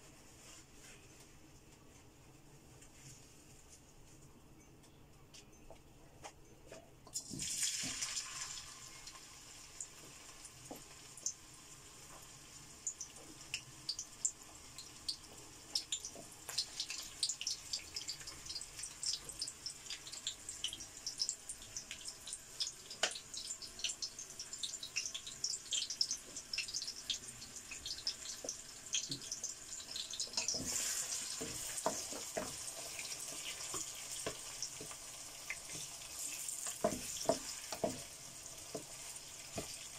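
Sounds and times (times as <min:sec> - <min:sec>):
onions sizzling in hot oil: 0:07.2 - 0:39.9
wooden spatula stirring: 0:27.8 - 0:39.9.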